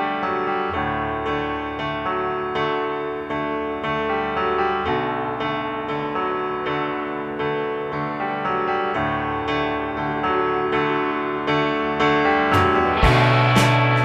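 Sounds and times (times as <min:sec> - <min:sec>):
piano melody: 0:00.0 - 0:14.0.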